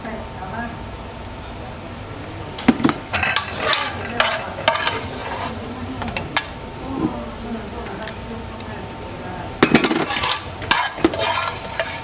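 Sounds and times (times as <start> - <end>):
plates and utensil clinking: 2.6 - 7.2, 9.6 - 12.0.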